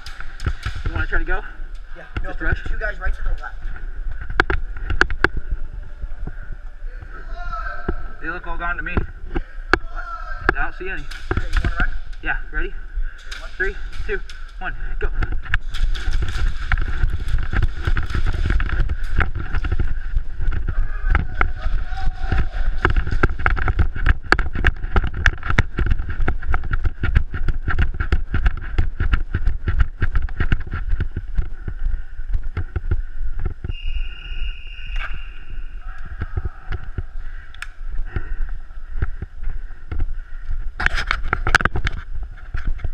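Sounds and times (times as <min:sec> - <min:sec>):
gear and gun rattling: 0:00.0 - 0:05.4, 0:10.7 - 0:33.7
wind and camera handling noise: 0:03.2 - 0:07.1, 0:13.2 - 0:34.0, 0:34.9 - 0:42.9
running footsteps on concrete: 0:12.8 - 0:33.7.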